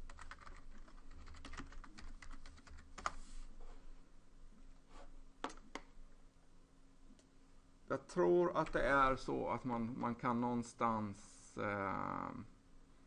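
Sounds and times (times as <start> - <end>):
computer keyboard typing: 0.0 - 3.2.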